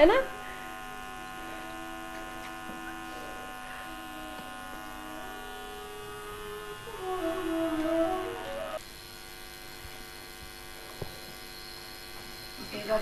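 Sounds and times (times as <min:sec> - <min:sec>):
electrical mains hum: 0:00.0 - 0:13.0
high steady tones buzzing: 0:00.0 - 0:13.0
faint held tones stepping in pitch: 0:03.8 - 0:08.8.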